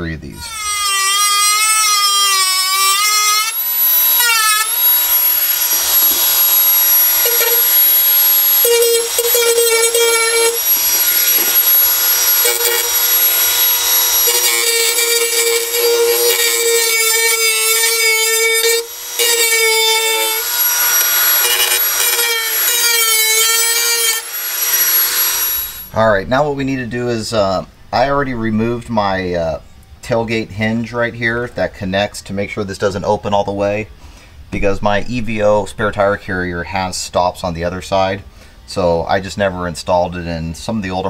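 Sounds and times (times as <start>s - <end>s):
rotary tool grinding metal: 0.4s - 26.0s.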